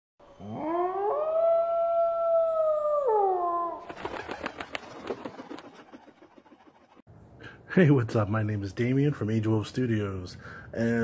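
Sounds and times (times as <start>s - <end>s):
wolf howling: 0.4s - 3.9s.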